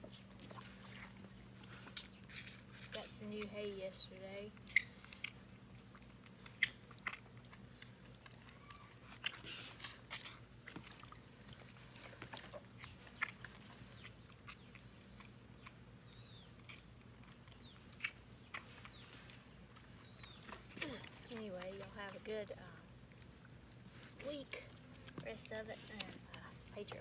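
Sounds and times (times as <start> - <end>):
calf sucking on bottle nipple: 0.0 - 4.0
birds chirping: 10.7 - 27.0.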